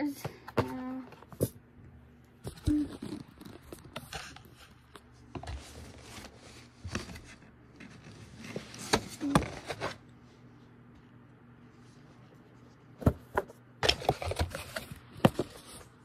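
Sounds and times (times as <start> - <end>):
packaging rustles and scrapes: 2.5 - 10.0.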